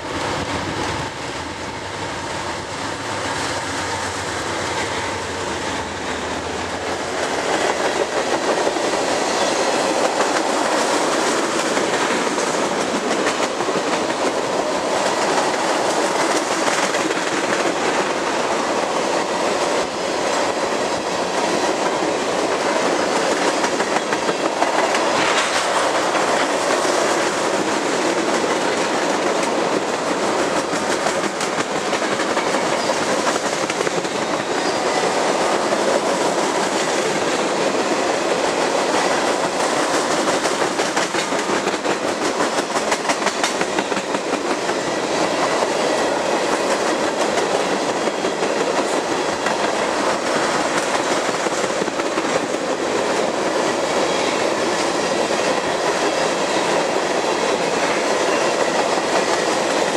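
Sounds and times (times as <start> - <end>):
diesel locomotive engines humming: 0.0 - 16.3
train wheels clacking on rails: 0.0 - 59.9.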